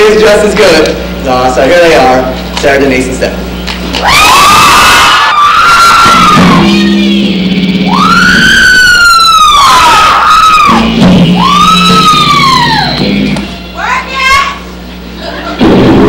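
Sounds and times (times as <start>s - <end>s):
steady low hum: 0.0s - 4.2s
dance music: 5.7s - 16.0s.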